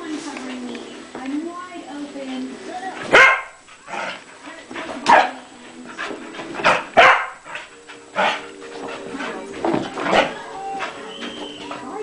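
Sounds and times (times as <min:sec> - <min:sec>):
dog barking: 0:03.1 - 0:04.1, 0:05.1 - 0:05.4, 0:06.7 - 0:07.5.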